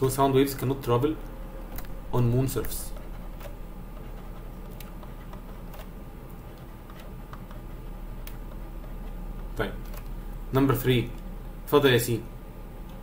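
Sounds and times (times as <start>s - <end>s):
faint clicks and taps: 0.5s - 10.2s.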